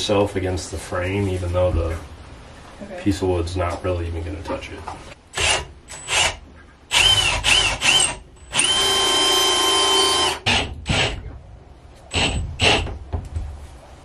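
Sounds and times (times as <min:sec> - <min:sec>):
cordless drill driving screws: 0:05.4 - 0:11.2.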